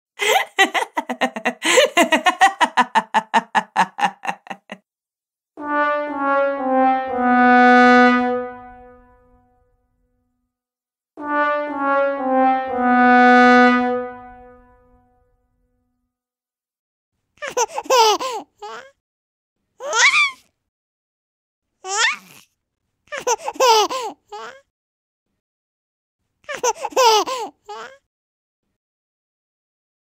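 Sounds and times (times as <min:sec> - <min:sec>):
sad trombone sound effect: 0:05.6 - 0:09.5, 0:11.2 - 0:15.1.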